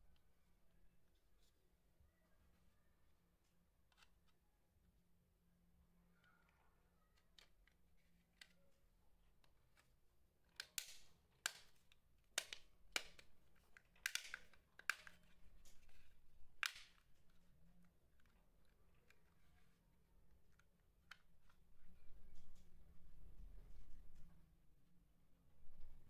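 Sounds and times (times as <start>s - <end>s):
plastic clips clicking: 9.4s - 17.3s.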